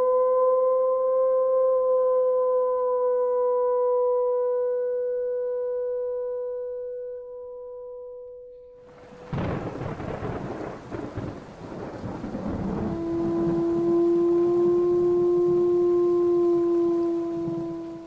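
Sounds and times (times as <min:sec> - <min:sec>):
low drone music note: 0:00.0 - 0:18.0
steady rain: 0:08.8 - 0:18.0
thunder clap and rumbling: 0:08.9 - 0:18.0.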